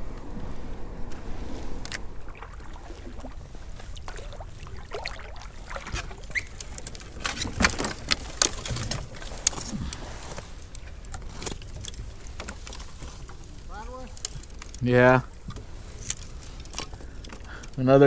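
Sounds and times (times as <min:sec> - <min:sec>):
steady low rumble: 0:00.0 - 0:07.2
fishing gear clicks and rattles: 0:03.7 - 0:18.0.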